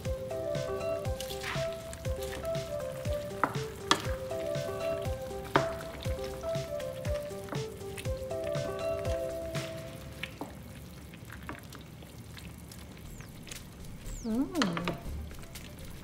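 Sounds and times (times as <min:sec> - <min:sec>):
background music with beat: 0:00.0 - 0:10.2
soup boiling and bubbling: 0:00.0 - 0:16.0.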